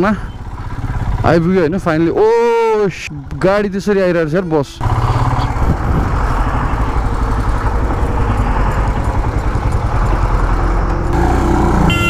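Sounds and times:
motorcycle engine rumbling: 0.0 - 12.0
bus passing: 4.8 - 12.0.

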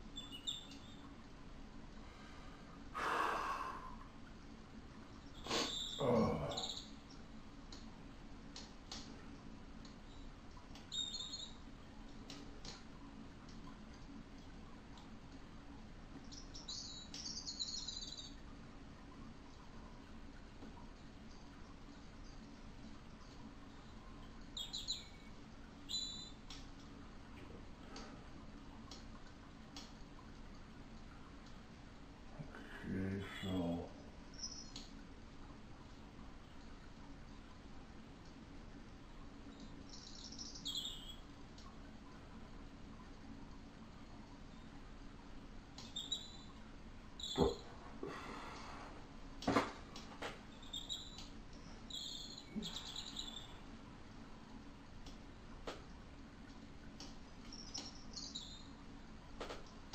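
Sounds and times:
low steady hum: 0.0 - 59.9
high bird-like chirps: 0.2 - 1.0, 5.3 - 7.0, 10.9 - 11.6, 16.3 - 18.4, 24.6 - 25.3, 25.9 - 26.4, 34.3 - 34.8, 39.9 - 41.2, 45.9 - 46.5, 47.2 - 47.6, 50.5 - 53.6, 57.5 - 58.7.

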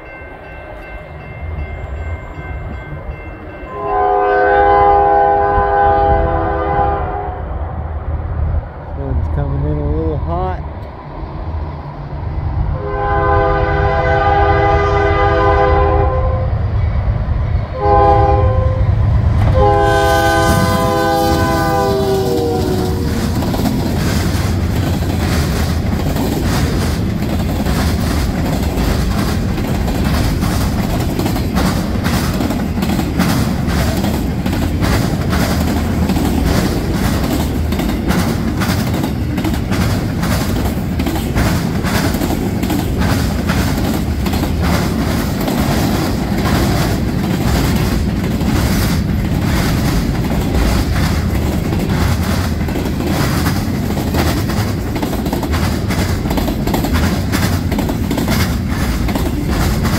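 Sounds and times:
locomotive air horn chord: 3.7 - 7.5, 12.8 - 16.6, 17.8 - 18.9, 19.5 - 23.1
freight car wheels clattering: 19.7 - 59.9.

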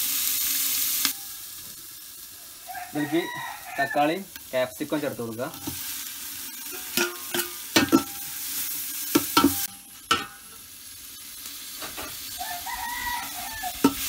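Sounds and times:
vegetables sizzling in hot oil: 0.0 - 14.0
ladle scraping and clinking pot: 6.7 - 8.4, 9.2 - 10.6, 13.8 - 14.0.

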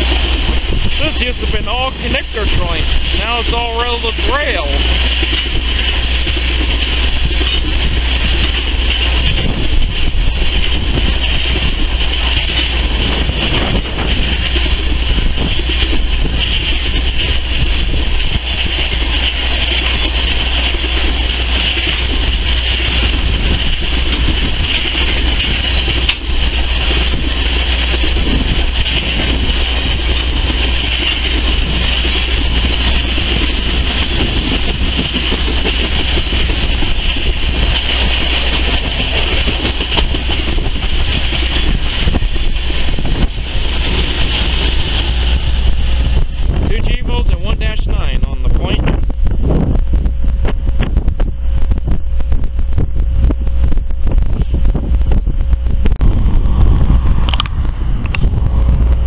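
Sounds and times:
train wheels running on rails: 0.0 - 59.0.

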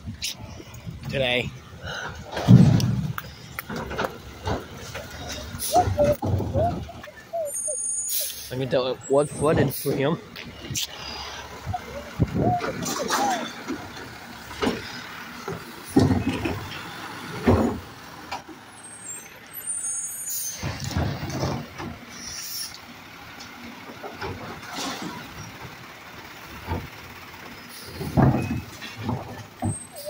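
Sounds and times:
hydraulic arm lifting carts: 0.0 - 30.0
truck engine running: 0.0 - 30.0
loud bangs of carts: 2.2 - 6.9, 12.4 - 18.0, 27.9 - 30.0.

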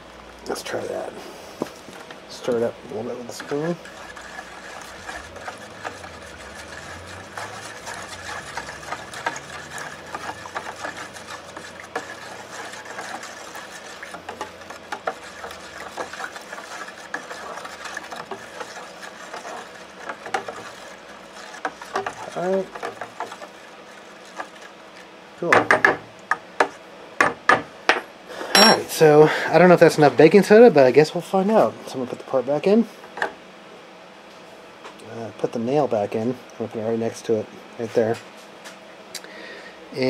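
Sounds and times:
spoon stirring in plastic tub: 2.0 - 25.1.

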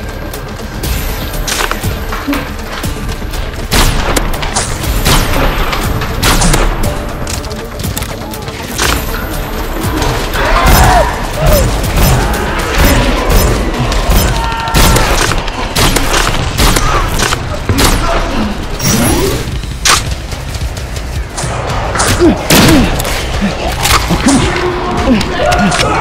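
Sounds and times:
action music: 0.0 - 26.0
booming shot and impact effects: 3.6 - 7.0.

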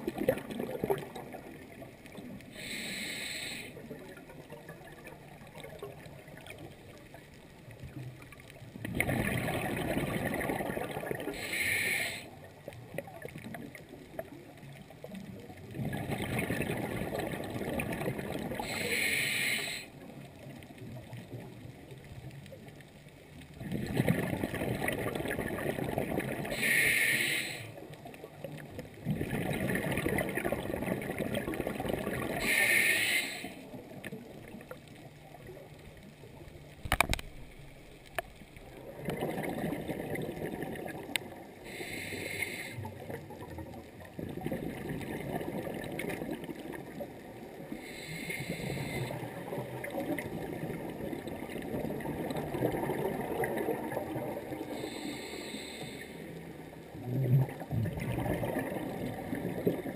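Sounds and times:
regulator inhalation hiss: 2.6 - 3.8, 11.4 - 12.3, 18.6 - 19.9, 26.6 - 27.8, 32.4 - 33.6, 41.7 - 42.9, 47.7 - 49.1, 54.8 - 56.2
bubbling exhaled air: 8.8 - 12.4, 15.6 - 20.0, 23.6 - 27.8, 28.5 - 34.7, 38.6 - 59.9.

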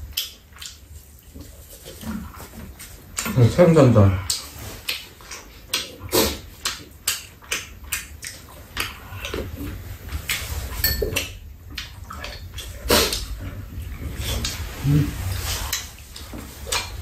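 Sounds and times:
eating clicks and smacks: 0.0 - 14.8, 15.6 - 17.0
soup slurping: 6.0 - 6.6, 10.3 - 17.0.

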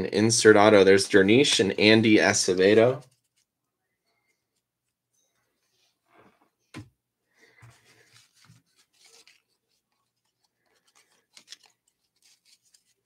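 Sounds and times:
trading cards rustling: 0.7 - 3.5, 7.7 - 13.0.

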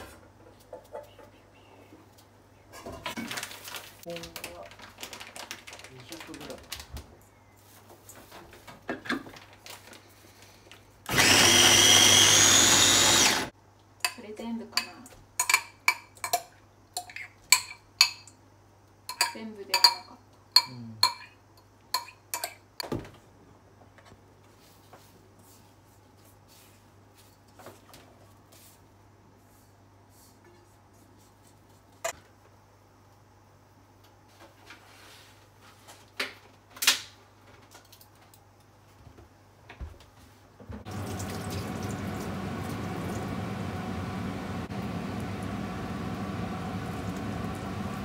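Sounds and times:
range hood fan humming: 40.6 - 48.0.

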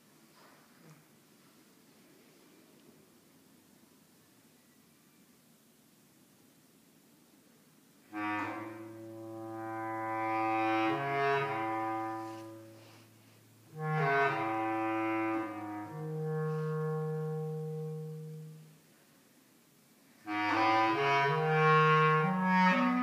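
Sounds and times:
bass clarinet playing low notes: 8.1 - 18.8, 20.2 - 23.0.

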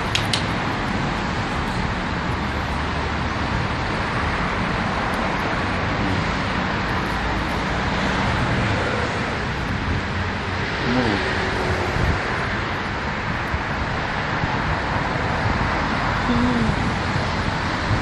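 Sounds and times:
street traffic rumble: 0.0 - 18.0.

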